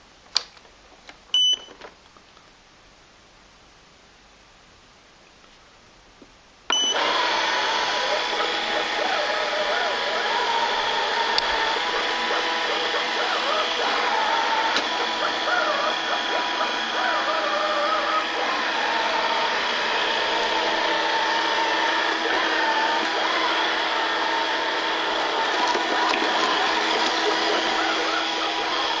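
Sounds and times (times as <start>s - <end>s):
robot vacuum whirring: 6.7s - 29.0s.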